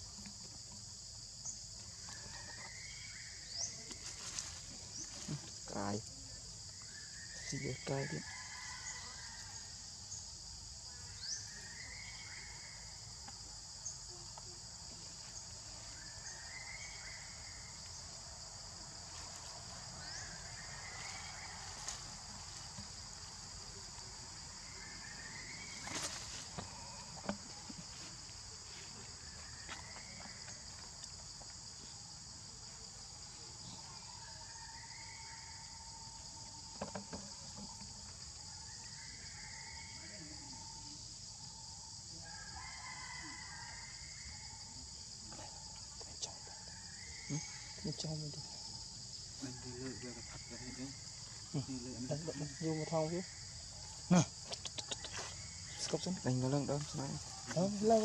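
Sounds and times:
insects chorus: 0.0s - 58.0s.

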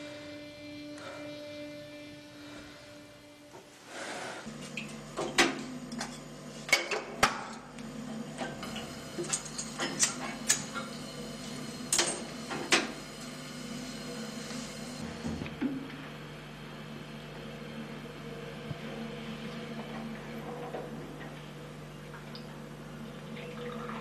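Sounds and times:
low hum: 0.0s - 9.7s.

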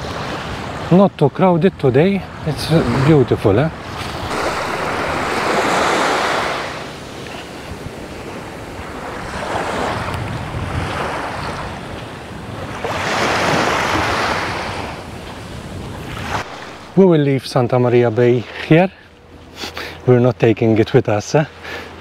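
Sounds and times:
sea waves washing on beach: 0.0s - 20.2s
wind across microphone: 2.4s - 17.0s.

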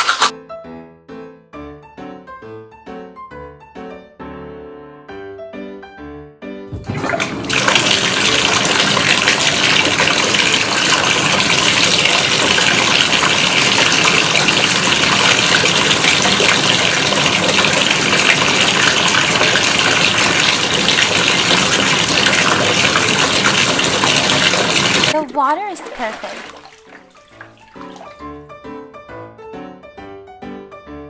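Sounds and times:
music: 0.0s - 21.4s, 22.1s - 31.0s
water pouring from faucet: 6.7s - 28.4s.

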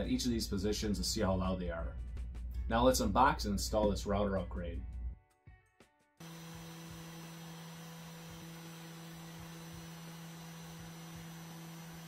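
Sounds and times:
spindle motor humming: 6.2s - 12.0s.

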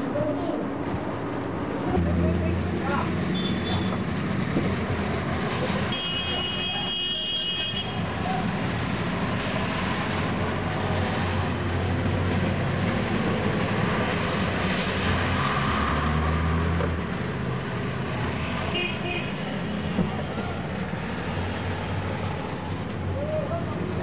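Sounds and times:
road noise: 0.0s - 24.0s.

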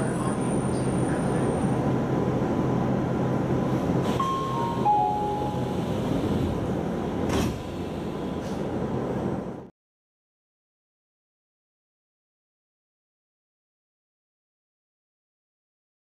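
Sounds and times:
descending three-note chime: 4.2s - 5.8s
train doors shutting thump: 5.4s - 8.7s.

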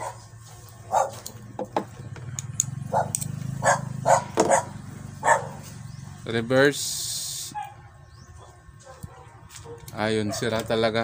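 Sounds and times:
dog barking: 0.0s - 0.3s, 0.9s - 1.2s, 2.9s - 5.7s, 7.5s - 10.7s
steady low hum: 0.0s - 11.0s.

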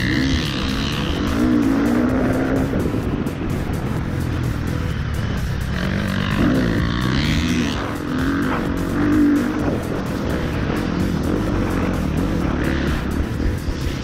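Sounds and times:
motocross engine revving: 0.0s - 14.0s.

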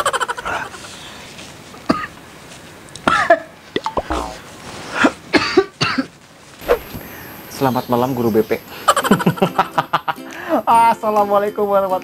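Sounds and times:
man coughing: 1.9s - 2.1s, 3.1s - 3.5s, 5.0s - 6.1s.

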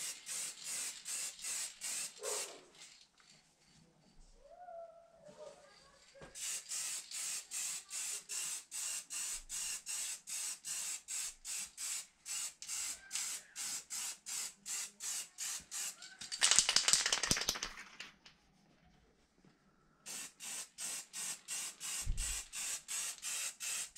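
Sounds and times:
spray can hissing: 0.0s - 2.6s, 6.4s - 17.6s, 20.1s - 23.9s
spray can ball rattling: 0.0s - 3.1s, 6.4s - 18.1s, 20.1s - 23.9s.

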